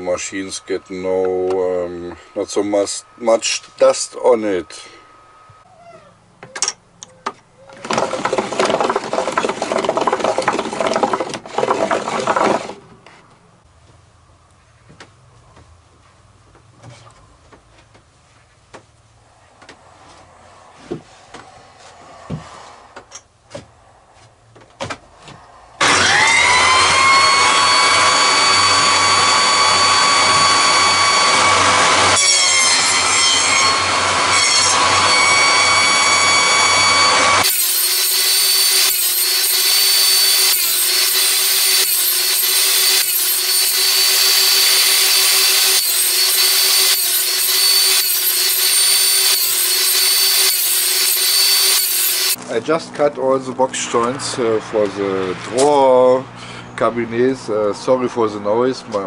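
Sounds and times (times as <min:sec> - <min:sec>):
table saw whining: 0:07.7 - 0:12.8, 0:25.8 - 0:52.4
loud sawing: 0:07.8 - 0:12.8, 0:25.8 - 0:52.4.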